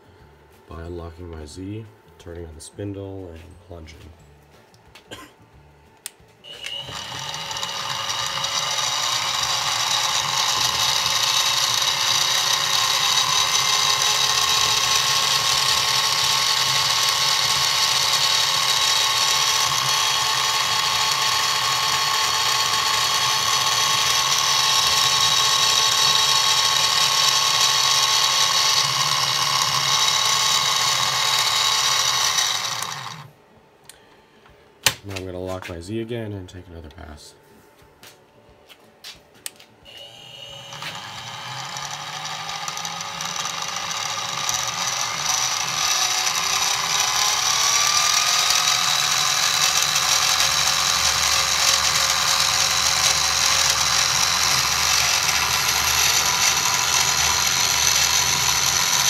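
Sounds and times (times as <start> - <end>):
milling machine motor whining: 6.0 - 33.3, 39.9 - 59.0
end mill cutting aluminium: 6.5 - 33.3, 39.9 - 59.0.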